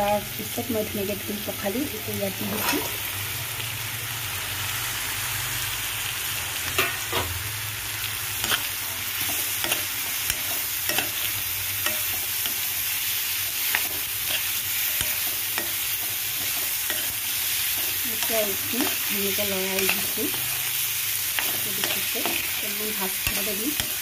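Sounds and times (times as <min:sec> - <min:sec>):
food sizzling in hot oil: 0:00.0 - 0:24.0
metal spatula scraping a pan: 0:02.4 - 0:03.0, 0:08.4 - 0:12.8.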